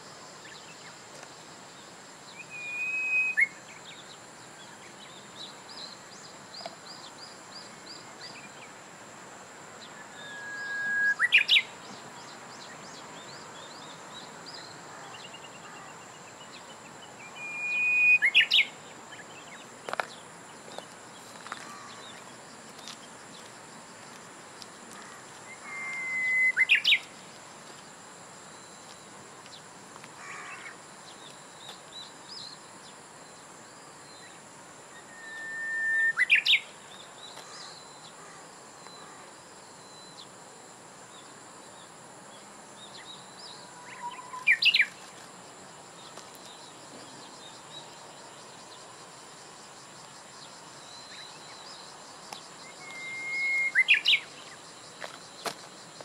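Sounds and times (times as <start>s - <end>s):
bird singing whistled song: 2.3s - 4.1s, 10.0s - 15.5s, 17.1s - 19.6s, 25.5s - 27.1s, 35.0s - 36.7s, 42.9s - 45.0s, 52.6s - 54.6s.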